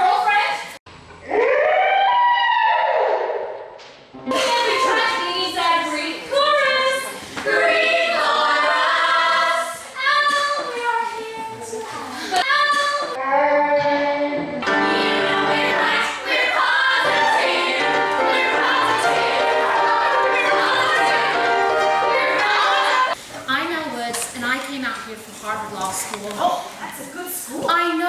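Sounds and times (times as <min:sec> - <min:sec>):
backing music: 0:04.3 - 0:06.8, 0:14.4 - 0:23.2
female chorus singing: 0:04.3 - 0:11.0, 0:14.6 - 0:23.2.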